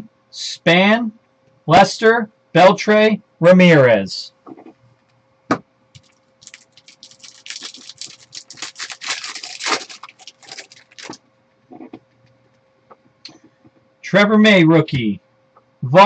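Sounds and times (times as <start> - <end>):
plastic wrapper tearing and crinkling: 6.0 - 11.2
soft wrapper rustles: 6.0 - 11.2.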